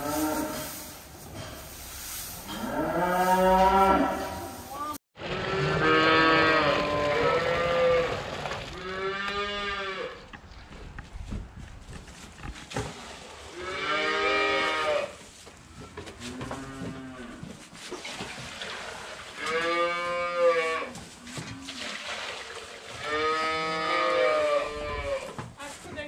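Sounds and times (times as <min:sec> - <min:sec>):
calves mooing: 0:02.5 - 0:08.2, 0:13.6 - 0:15.1, 0:19.4 - 0:21.0, 0:23.0 - 0:25.3.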